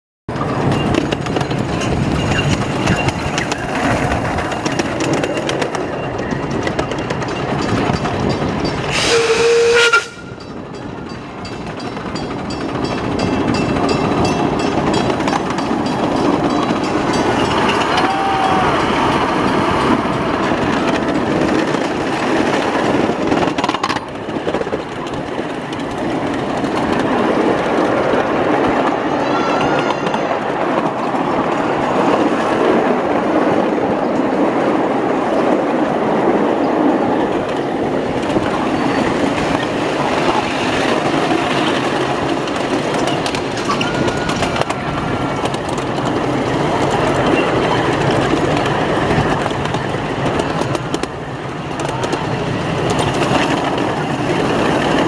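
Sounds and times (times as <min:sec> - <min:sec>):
wheels rumbling on rails: 0:00.3 - 0:55.0
train whistle blast: 0:08.9 - 0:10.4.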